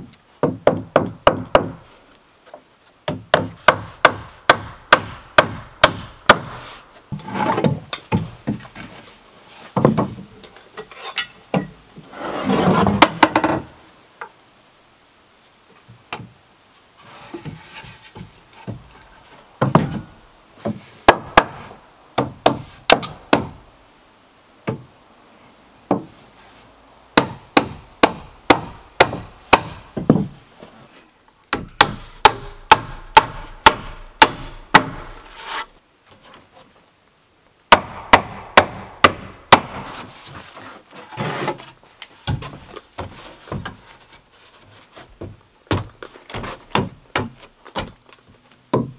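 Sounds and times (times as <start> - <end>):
hammer striking nails: 3.1 - 6.6, 22.2 - 23.6, 27.2 - 30.1, 31.5 - 35.2, 37.7 - 39.9
lumber scraping and knocking: 6.4 - 13.7, 17.0 - 23.1, 29.9 - 31.1, 34.8 - 36.8, 39.5 - 48.9.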